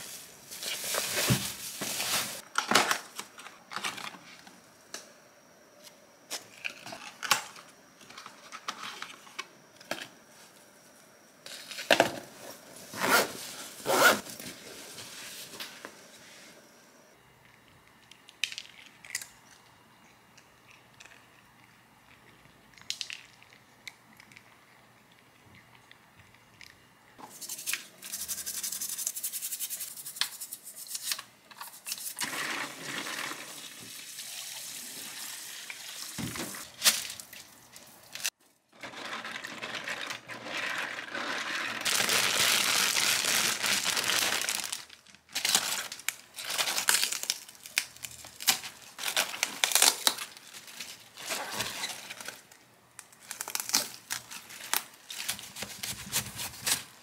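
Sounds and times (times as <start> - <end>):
cabbage leaves crackling and tearing: 41.8 - 52.4, 53.2 - 56.9.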